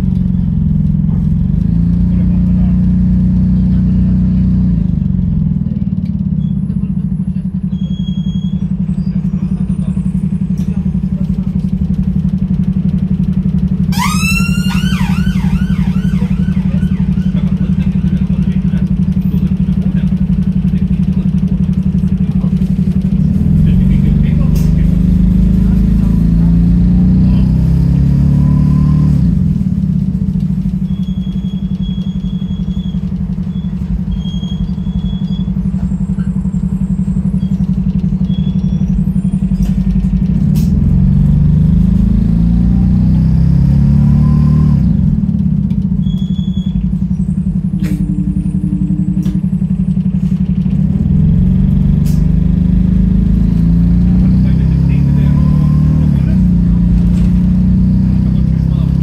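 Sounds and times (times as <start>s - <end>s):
bus diesel engine accelerating: 0.0s - 59.0s.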